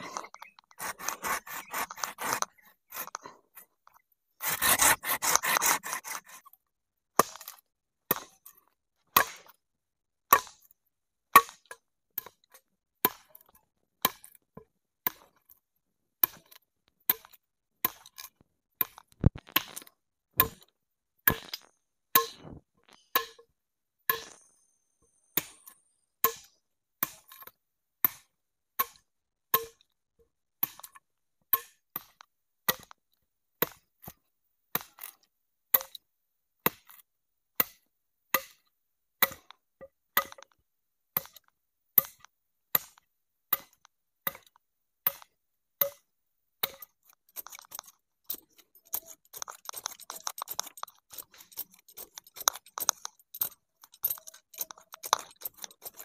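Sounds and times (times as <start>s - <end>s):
blade chopping wood: 0.0s - 3.3s, 4.4s - 6.4s, 18.8s - 20.7s, 39.2s - 39.6s, 46.6s - 56.0s
rasping scrape: 0.0s - 3.7s, 4.4s - 6.5s, 46.6s - 56.0s.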